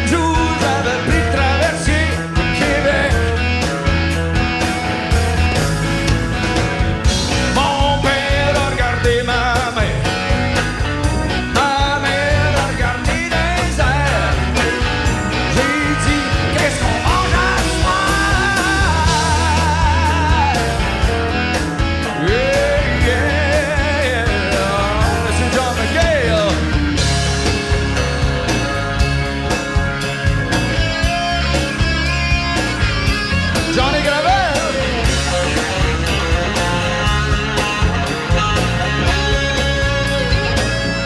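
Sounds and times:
lead vocal singing with vibrato: 0:00.0 - 0:03.4, 0:11.6 - 0:21.0, 0:22.1 - 0:26.6
live rock band playing: 0:00.0 - 0:41.0.

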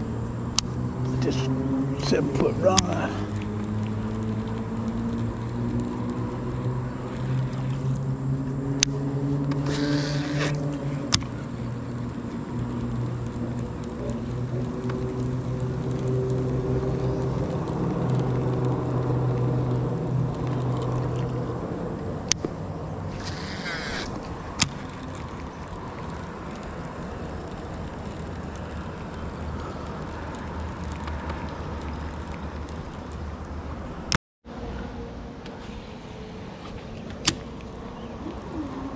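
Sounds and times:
motor droning: 0:00.0 - 0:34.0
sharp clicks: 0:02.6 - 0:08.0, 0:08.8 - 0:21.5, 0:22.2 - 0:33.6
short whirring hisses: 0:09.6 - 0:11.4, 0:23.1 - 0:25.2, 0:35.5 - 0:37.5.

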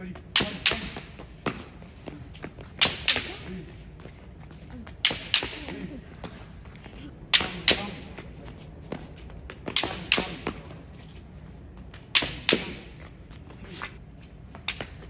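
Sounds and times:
bamboo sword strikes cracking: 0:00.4 - 0:01.6, 0:02.8 - 0:03.5, 0:05.0 - 0:05.8, 0:07.3 - 0:08.0, 0:09.7 - 0:10.5, 0:12.2 - 0:13.0.

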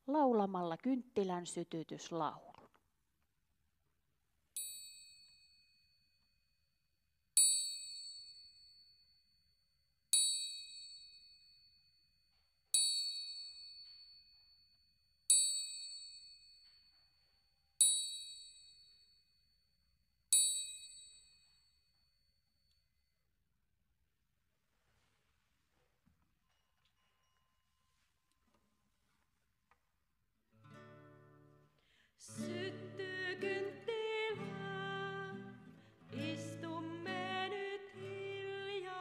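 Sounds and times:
small high-pitched bell ringing: 0:04.6 - 0:06.7, 0:07.4 - 0:22.9.

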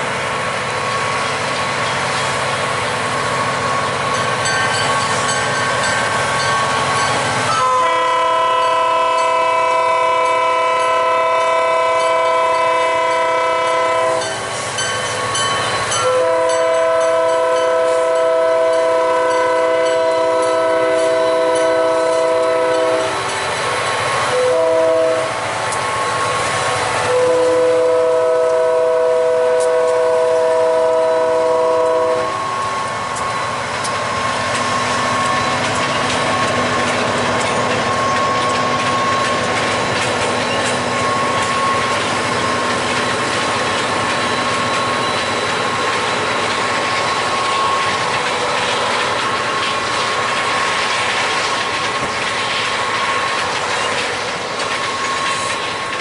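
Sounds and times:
diesel locomotives rumbling: 0:00.0 - 0:56.0
locomotive air horn blasts: 0:07.5 - 0:14.3, 0:16.0 - 0:23.3, 0:24.3 - 0:25.4, 0:27.0 - 0:32.8.

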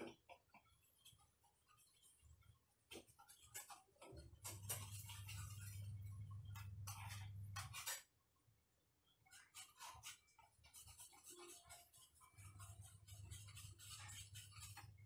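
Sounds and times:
low electrical hum: 0:04.2 - 0:09.3.

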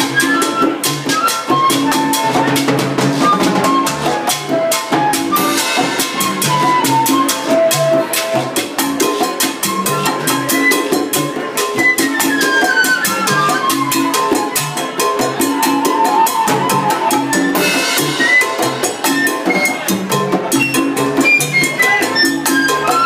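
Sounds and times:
drums and percussion beat: 0:00.0 - 0:23.0
salsa band playing: 0:00.0 - 0:23.0.

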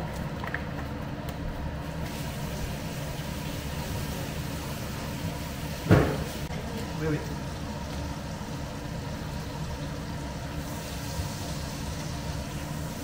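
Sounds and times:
cooker hood rumbling: 0:00.0 - 0:07.7
gas burners hissing: 0:01.5 - 0:13.0.

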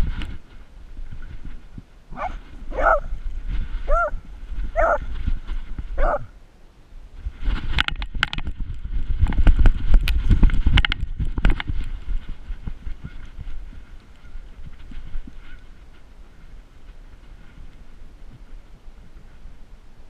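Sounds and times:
dog barking: 0:02.1 - 0:03.1, 0:03.9 - 0:04.2, 0:04.8 - 0:05.0, 0:06.0 - 0:06.3.

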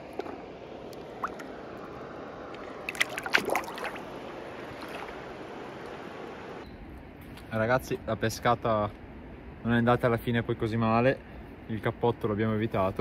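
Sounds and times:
river water running: 0:00.0 - 0:06.6.

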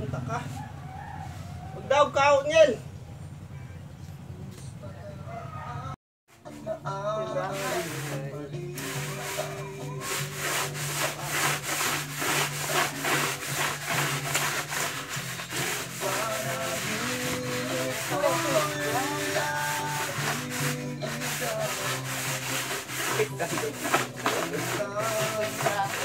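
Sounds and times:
music playing: 0:06.3 - 0:26.0
floor polisher scraping floor: 0:07.3 - 0:26.0.

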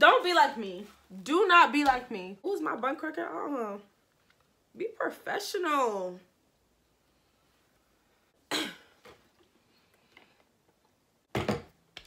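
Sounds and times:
faint small sounds: 0:06.2 - 0:11.3
woman coughing: 0:08.5 - 0:09.0.

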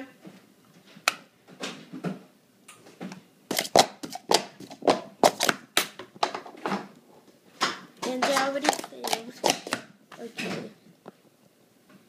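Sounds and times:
plastic cups clacking: 0:03.5 - 0:06.5, 0:07.6 - 0:09.9.

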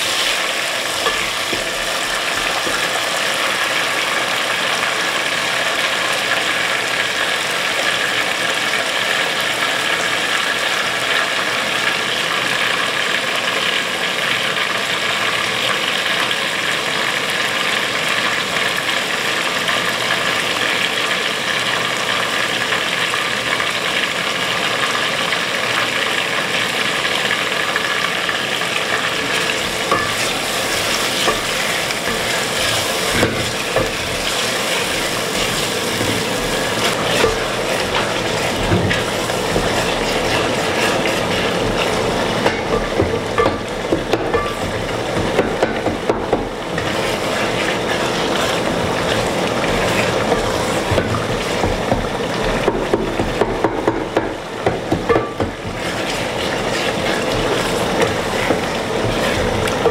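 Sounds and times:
tomatoes sizzling in a pot: 0:00.0 - 0:59.9
wooden spoon knocking against pot: 0:42.4 - 0:46.6, 0:50.8 - 0:55.9.

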